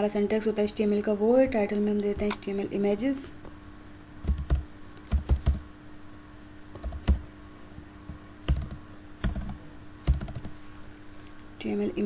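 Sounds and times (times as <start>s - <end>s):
keyboard keystrokes: 4.3s - 5.6s, 8.5s - 10.5s.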